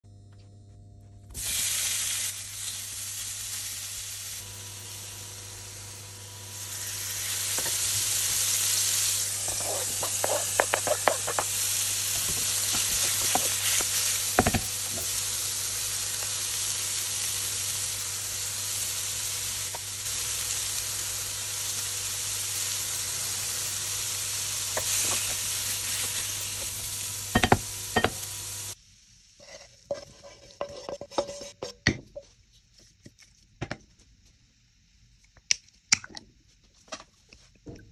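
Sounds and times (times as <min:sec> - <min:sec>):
food sizzling in a frying pan: 0:01.4 - 0:31.2
spatula scraping a pan: 0:09.2 - 0:14.5, 0:24.7 - 0:26.8, 0:29.4 - 0:31.8.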